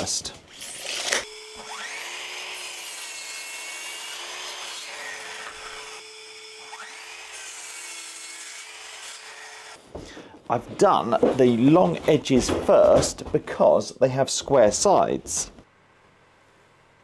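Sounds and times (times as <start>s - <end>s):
mitre saw cutting wood: 0.5s - 9.8s.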